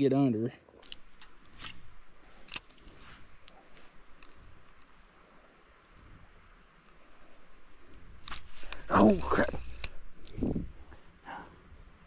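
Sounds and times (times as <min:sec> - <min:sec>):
insects trilling: 0:00.0 - 0:12.0
soft clicks: 0:00.8 - 0:05.0.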